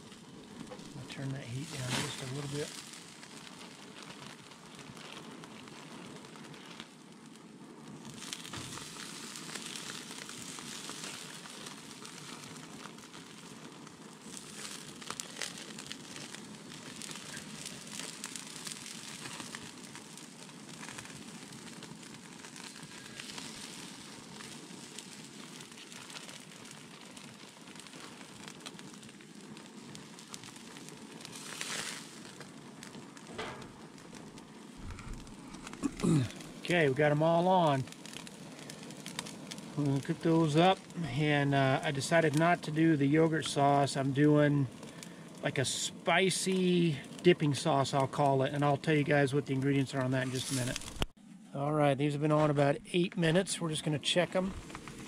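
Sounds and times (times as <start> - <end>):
meat sizzling on a grill: 0.0 - 51.2, 52.1 - 55.0
plastic bag crinkling: 0.5 - 4.3, 30.4 - 36.9, 50.2 - 51.2, 54.4 - 55.0.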